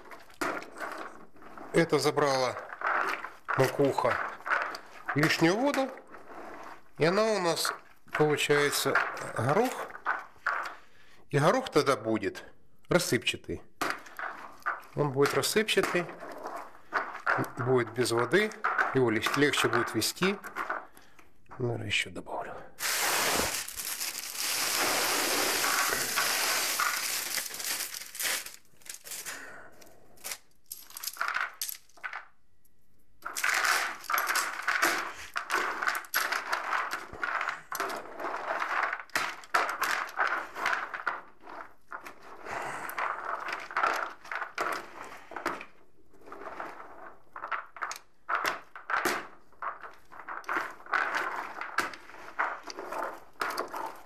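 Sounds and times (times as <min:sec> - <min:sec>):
pellets poured into bucket: 0:00.0 - 0:10.7, 0:22.8 - 0:29.6, 0:30.2 - 0:32.2, 0:33.4 - 0:41.9, 0:48.6 - 0:54.0
hand mixing crunching pellets: 0:00.0 - 0:11.6, 0:14.0 - 0:20.9, 0:22.8 - 0:32.2, 0:33.2 - 0:45.4, 0:46.2 - 0:54.0
plastic bag rustling: 0:22.8 - 0:29.6, 0:30.2 - 0:31.8.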